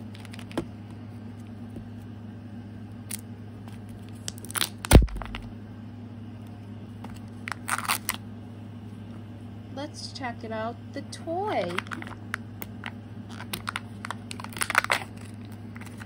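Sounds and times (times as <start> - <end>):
plastic packaging crinkling: 3.1 - 5.5, 7.1 - 8.2, 11.7 - 16.0.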